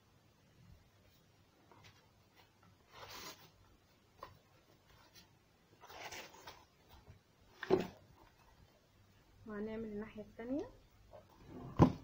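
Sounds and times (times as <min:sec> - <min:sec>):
paper and cardboard rustling: 0:01.6 - 0:08.6.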